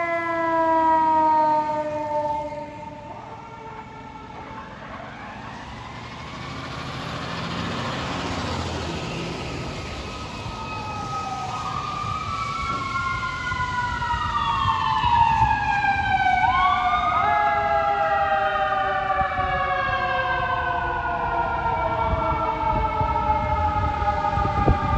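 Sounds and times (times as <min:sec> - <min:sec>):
fire engine sirens wailing: 0:00.0 - 0:24.9.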